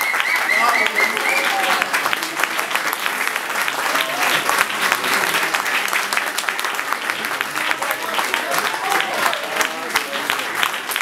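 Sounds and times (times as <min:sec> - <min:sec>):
voices calling out: 0:00.0 - 0:01.9
audience applauding: 0:00.0 - 0:11.0.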